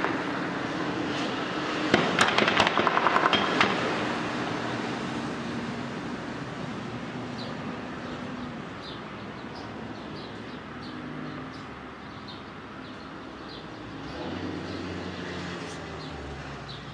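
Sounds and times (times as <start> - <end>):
small birds chirping: 7.2 - 16.9.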